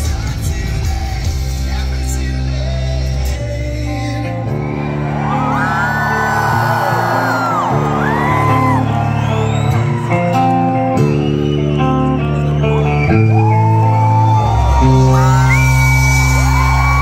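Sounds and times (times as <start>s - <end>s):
live rock band playing: 0.0s - 17.0s
crowd whooping: 4.2s - 17.0s.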